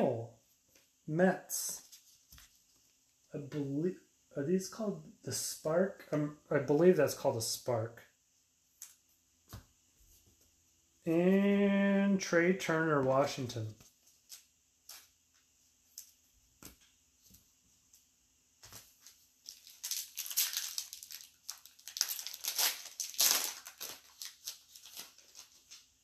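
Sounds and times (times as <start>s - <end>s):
card packs crinkling and rustling: 18.6s - 26.0s.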